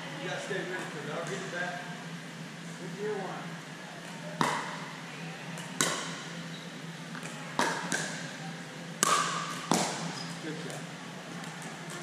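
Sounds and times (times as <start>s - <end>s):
ball bouncing on court: 4.4s - 4.8s, 5.6s - 6.4s, 7.1s - 8.3s, 9.0s - 10.8s
paddles striking plastic ball: 9.0s - 10.1s.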